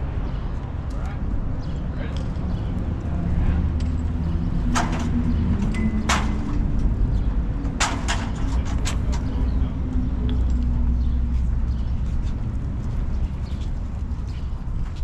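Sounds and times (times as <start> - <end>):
steady low rumble: 0.0 - 15.0
ladder metallic clanks: 3.8 - 6.9, 7.6 - 9.4.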